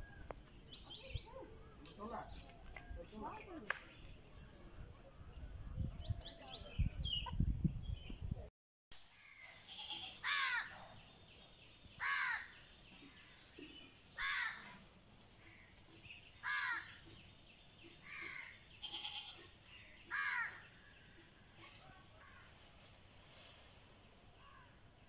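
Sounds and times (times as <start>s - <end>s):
crow cawing: 10.2s - 10.7s, 12.0s - 12.5s, 14.2s - 14.6s, 16.4s - 17.0s, 20.1s - 20.7s.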